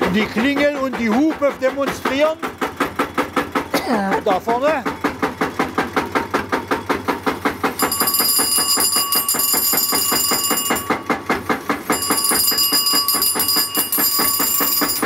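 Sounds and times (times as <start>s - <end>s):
slow-running engine beating: 0.0s - 15.0s
electric bell ringing: 7.8s - 15.0s.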